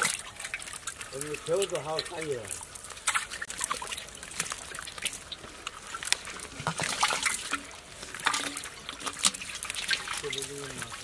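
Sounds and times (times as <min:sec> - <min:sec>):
fish flapping in wet net: 0:00.0 - 0:11.0.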